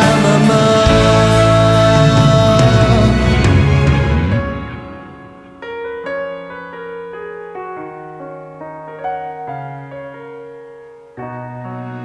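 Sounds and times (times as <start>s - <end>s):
slow piano melody: 0.0s - 12.0s.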